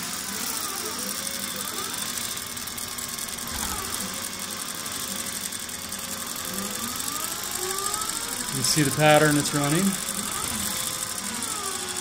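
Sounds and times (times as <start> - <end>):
quilting machine stitching: 0.0 - 12.0
stepper motors whining: 0.0 - 12.0.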